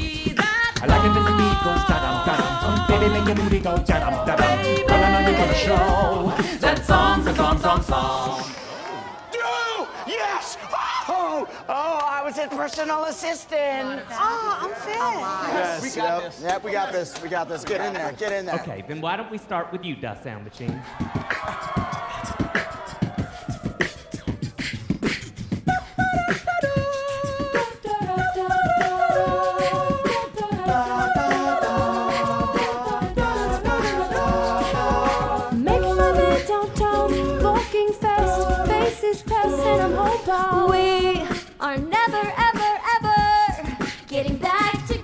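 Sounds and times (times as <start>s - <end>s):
deep sung bass line: 0.0s - 8.3s, 30.8s - 41.3s
beatboxed percussion: 0.0s - 8.7s, 20.5s - 45.0s
group singing sustained chords: 0.8s - 8.8s, 27.0s - 40.7s.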